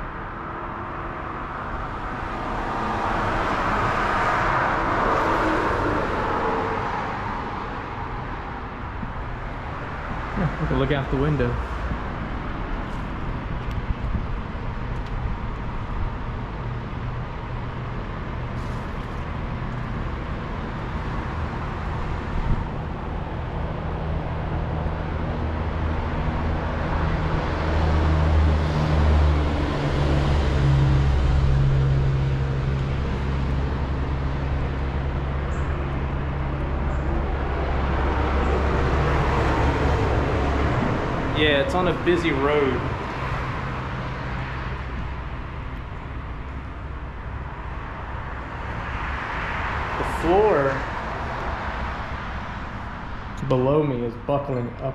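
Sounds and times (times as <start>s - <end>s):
traffic rushing past: 0.0s - 54.9s
vehicle engine low hum: 6.0s - 54.9s.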